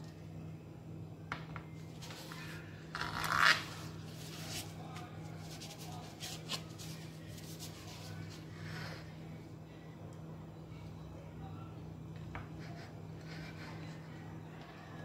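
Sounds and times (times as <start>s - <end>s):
knife scraping through cake: 12.6s - 14.1s.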